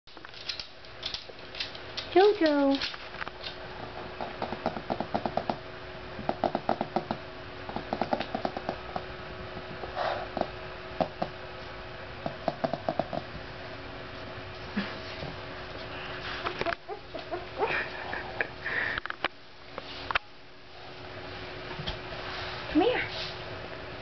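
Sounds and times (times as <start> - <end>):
puppy claws clicking on wood floor: 0.1 - 3.6, 6.3 - 9.1.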